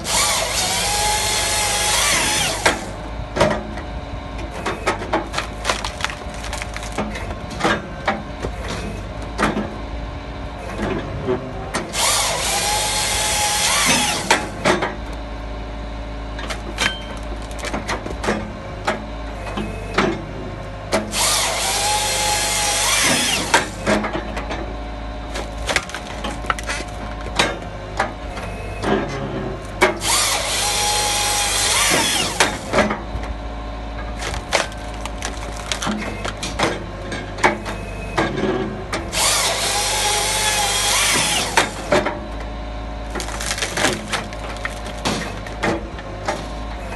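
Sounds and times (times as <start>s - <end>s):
saw cutting through log: 0.0s - 3.0s, 11.8s - 14.6s, 21.0s - 24.1s, 25.3s - 27.1s, 29.3s - 32.9s, 34.2s - 36.8s, 39.1s - 42.0s, 43.2s - 45.8s
excavator engine running: 0.0s - 46.9s
knocks of wood splitting and falling: 4.6s - 9.7s, 16.4s - 19.0s, 25.3s - 28.2s, 28.8s - 33.0s, 34.0s - 42.2s, 43.1s - 46.6s.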